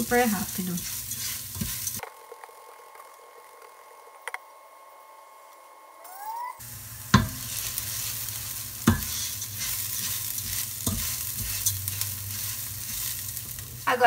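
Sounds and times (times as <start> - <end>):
rice sizzling in oil: 0.0 - 2.0, 6.6 - 14.0
spatula stirring: 0.0 - 2.0, 7.1 - 13.8
spatula knocking against pot: 7.1 - 7.4, 8.8 - 9.2.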